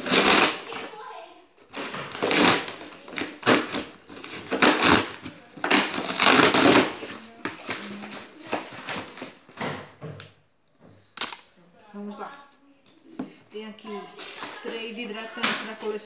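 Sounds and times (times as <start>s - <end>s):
cardboard box ripping: 0.0s - 0.9s, 1.7s - 9.4s.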